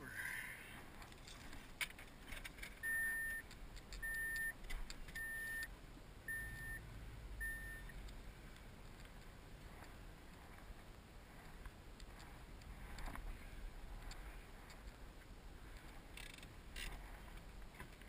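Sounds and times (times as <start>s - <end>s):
car warning chime beeping: 2.8s - 4.6s, 5.2s - 8.0s.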